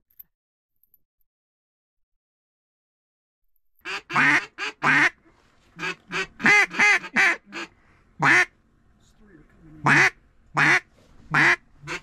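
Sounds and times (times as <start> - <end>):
duck quacking: 3.9 - 5.2, 5.8 - 8.5, 9.8 - 12.0.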